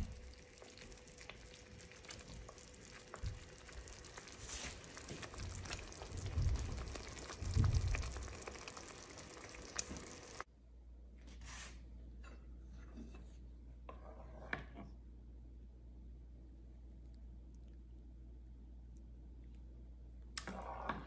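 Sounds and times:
sauce sizzling and popping: 0:00.0 - 0:10.5
low rumbles: 0:05.4 - 0:08.6.

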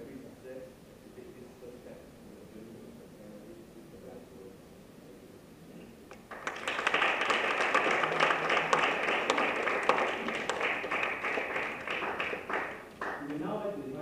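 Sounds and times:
audience applause: 0:06.3 - 0:13.4.

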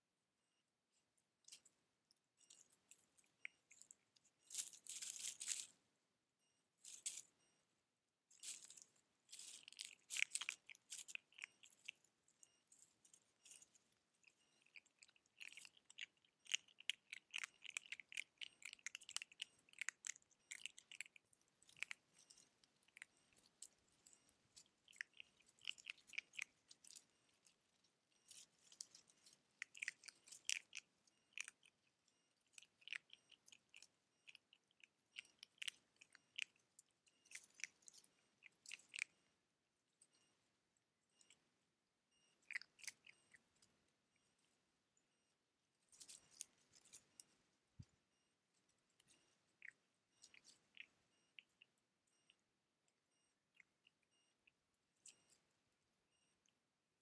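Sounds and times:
animals rustling in dry leaves: 0:04.5 - 0:05.7.

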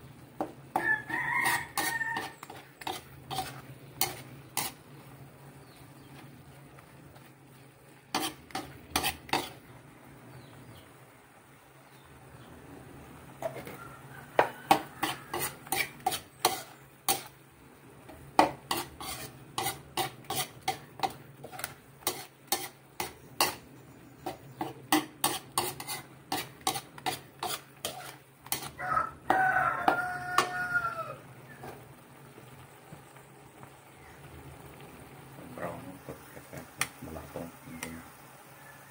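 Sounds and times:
meat being stirred in wok: 0:00.0 - 0:38.9
spoon clacking on metal pan: 0:00.4 - 0:04.8, 0:08.1 - 0:09.6, 0:14.4 - 0:17.4, 0:18.4 - 0:30.6
rooster crowing: 0:00.7 - 0:02.6, 0:13.4 - 0:15.8, 0:28.6 - 0:31.4, 0:38.5 - 0:38.9.

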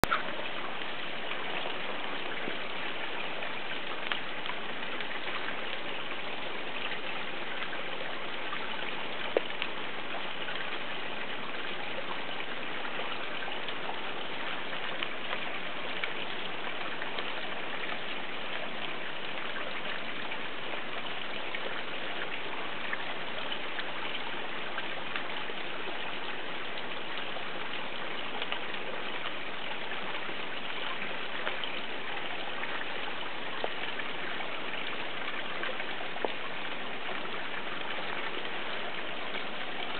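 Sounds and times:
rain falling on foliage: 0:00.0 - 0:39.9
water drips: 0:00.0 - 0:39.9.

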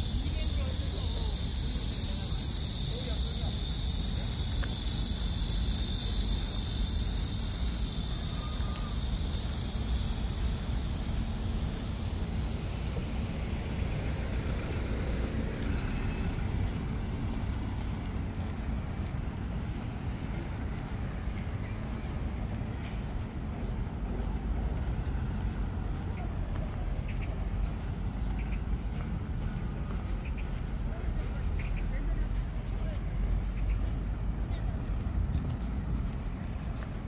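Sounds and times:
insects buzzing: 0:00.0 - 0:26.3
road traffic rumble: 0:00.0 - 0:37.0.

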